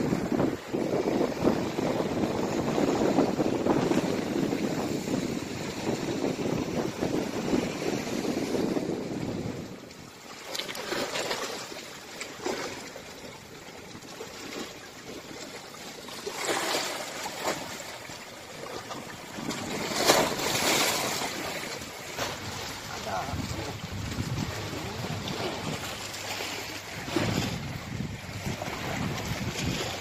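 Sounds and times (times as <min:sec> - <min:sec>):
wind rumble on microphone: 0:00.0 - 0:10.3, 0:18.8 - 0:30.0
small waves breaking on sand: 0:00.0 - 0:30.0.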